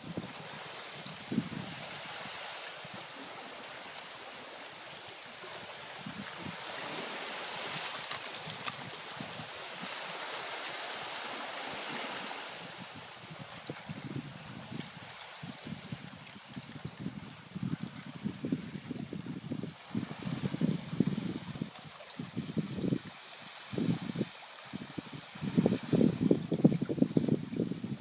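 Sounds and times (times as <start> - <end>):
water sloshing through slushy ice: 0.4 - 12.6.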